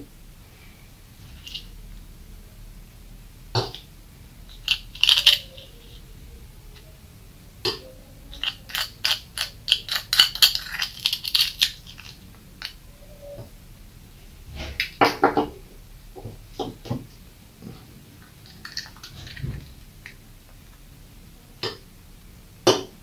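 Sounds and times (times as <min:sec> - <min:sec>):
sugar crunching: 0:04.5 - 0:06.1, 0:07.6 - 0:12.9.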